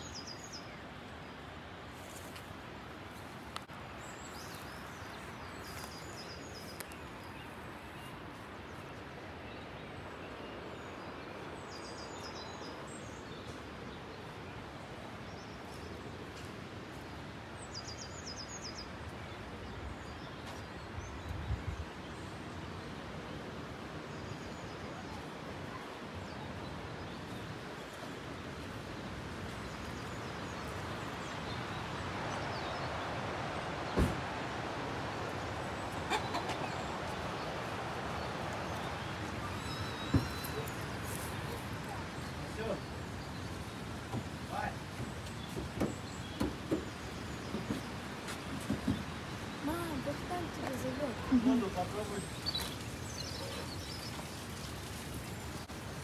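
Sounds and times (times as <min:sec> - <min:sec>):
running mountain water: 0:00.0 - 0:56.0
bird chirping: 0:38.1 - 0:54.7.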